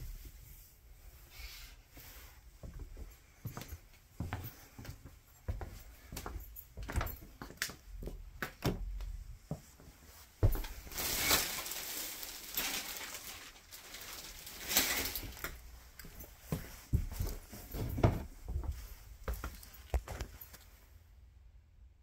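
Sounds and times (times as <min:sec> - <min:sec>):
footsteps: 0:01.9 - 0:20.8
shower curtain rings scraping: 0:10.7 - 0:15.6.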